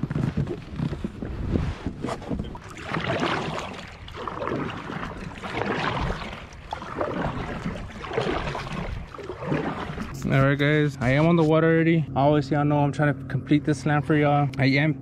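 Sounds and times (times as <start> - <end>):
water sloshing around kayak: 0.0 - 11.7.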